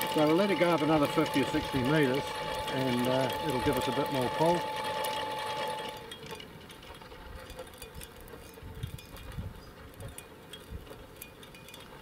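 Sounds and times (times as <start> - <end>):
electric winch motor whining: 0.0 - 9.5.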